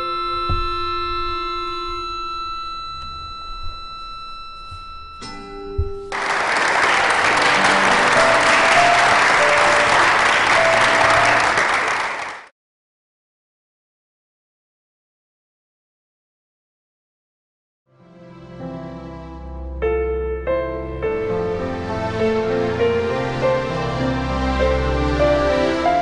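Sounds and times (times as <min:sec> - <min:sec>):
ringing musical tones: 0:00.0 - 0:06.2, 0:07.1 - 0:11.6
audience applause: 0:06.1 - 0:12.5.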